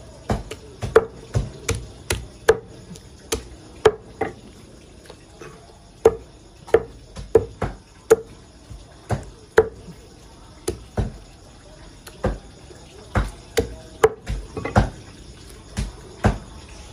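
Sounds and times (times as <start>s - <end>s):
cleaver chopping on wooden block: 0.3s - 4.1s, 6.0s - 8.3s, 10.7s - 11.2s.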